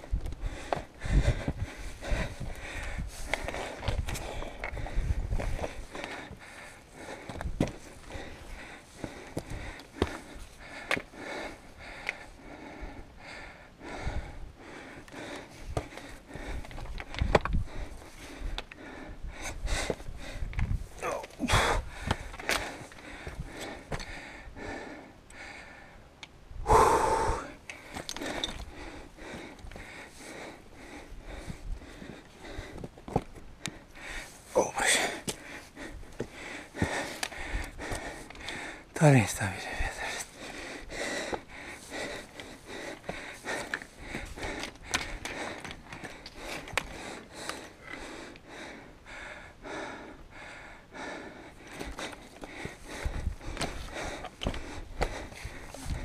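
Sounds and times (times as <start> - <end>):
person breathing hard: 0.0 - 32.9, 33.6 - 56.0
stones and chain clicking: 27.9 - 28.8, 43.6 - 47.8.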